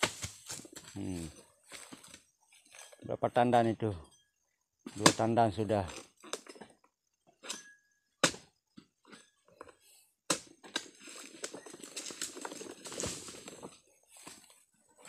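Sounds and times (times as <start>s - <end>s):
rustling and crackling fronds: 11.1s - 15.0s.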